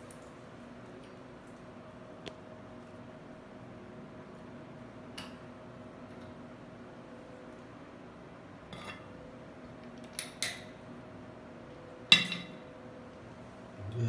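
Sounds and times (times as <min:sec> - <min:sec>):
steady low hum: 0:12.6 - 0:14.0.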